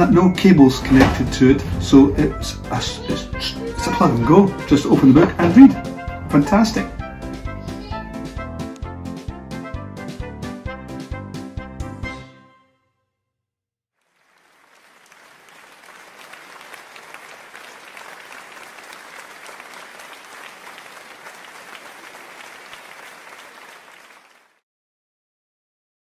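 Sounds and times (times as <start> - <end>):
music: 0.0 - 13.2
crowd applauding: 2.7 - 6.9, 14.0 - 24.6.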